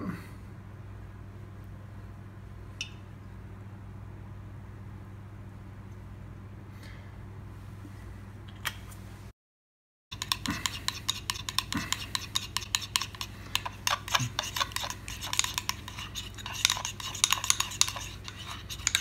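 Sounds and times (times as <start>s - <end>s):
metal spoon whisking in ceramic bowl: 10.1s - 19.0s.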